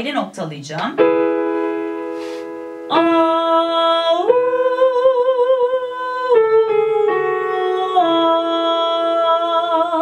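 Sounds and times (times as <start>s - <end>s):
keyboard notes: 0.8s - 10.0s
woman singing vocal exercise: 2.9s - 10.0s.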